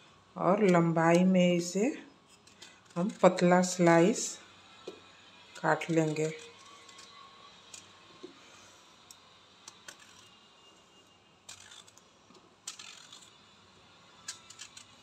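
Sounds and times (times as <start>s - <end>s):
knife cutting eggplant: 2.4s - 3.7s.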